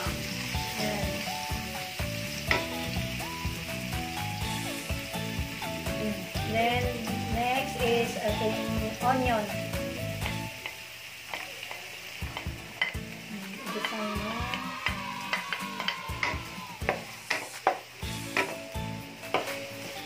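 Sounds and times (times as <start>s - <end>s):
onion and garlic sizzling in oil: 0.0s - 20.0s
wooden spatula scraping a pan: 15.8s - 18.7s.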